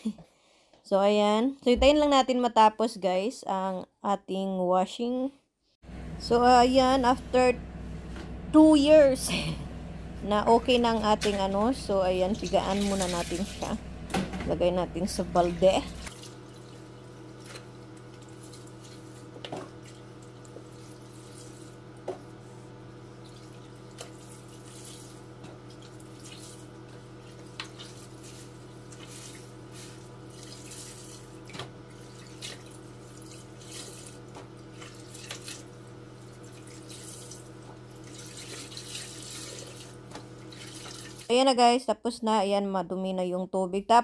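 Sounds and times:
steady low hum: 5.9s - 41.3s
water dripping and splashing: 11.2s - 13.8s, 15.9s - 22.0s, 23.2s - 41.3s.

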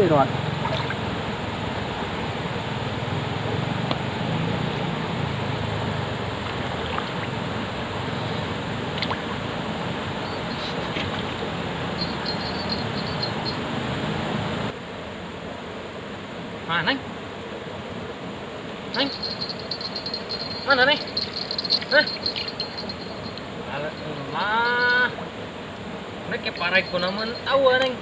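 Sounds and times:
flowing stream water: 0.2s - 14.7s, 18.4s - 28.0s
faint high chirps: 12.0s - 13.6s, 19.0s - 25.2s.

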